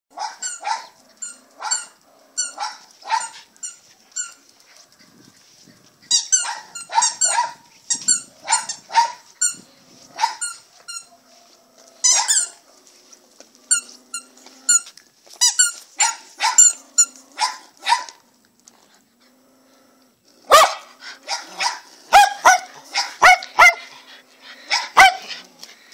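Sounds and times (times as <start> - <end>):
dog play-barking: 0.2 - 4.9, 6.1 - 12.7, 15.6 - 18.2, 20.5 - 24.1, 24.7 - 25.4.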